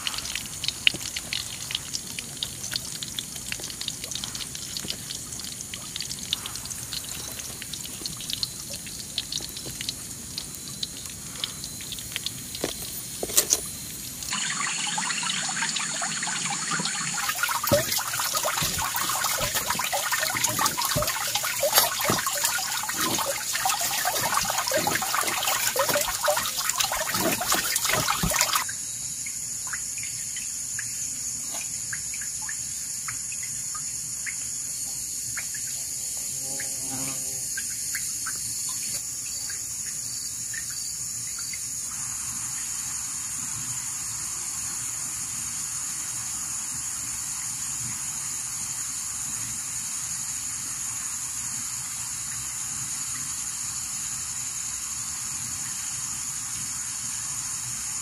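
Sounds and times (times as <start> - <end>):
water splashing and pouring: 0.0 - 28.7
high insect drone: 16.9 - 58.0.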